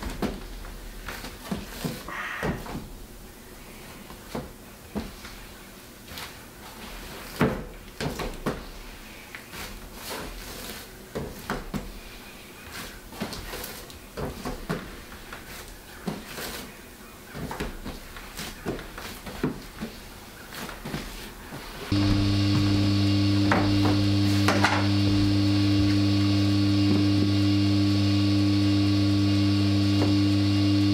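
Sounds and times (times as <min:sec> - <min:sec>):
paper bag rustling: 0:08.7 - 0:22.0.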